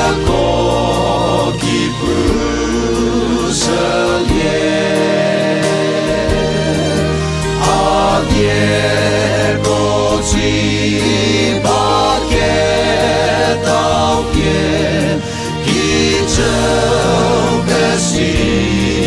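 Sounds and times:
male group singing gospel in harmony: 0.0s - 19.0s
sustained bass line: 0.0s - 19.0s.

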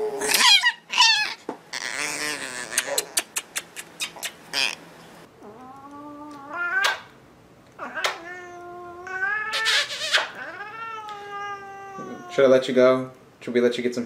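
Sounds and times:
puppy squealing and whining: 0.0s - 4.8s, 7.8s - 12.4s
kissing smacks: 2.6s - 4.8s, 6.8s - 7.1s, 8.0s - 8.2s, 9.5s - 10.4s
cat meowing: 5.4s - 7.1s, 7.8s - 12.6s.

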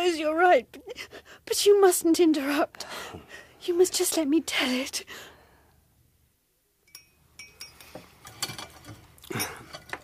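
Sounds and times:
glass and cutlery clinking: 6.9s - 10.0s.

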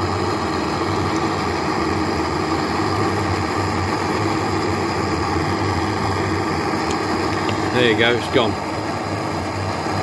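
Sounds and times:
blowtorch flame burning: 0.0s - 10.0s.

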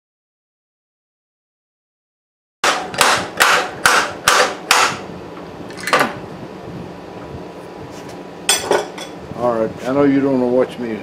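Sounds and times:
hammer striking a mold: 2.6s - 5.0s.

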